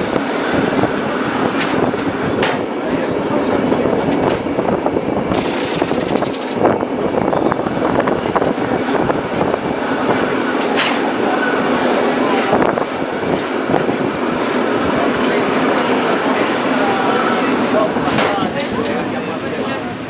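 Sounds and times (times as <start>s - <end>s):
cable car rumbling on rails: 0.0s - 20.0s
sharp clicks: 5.3s - 6.6s.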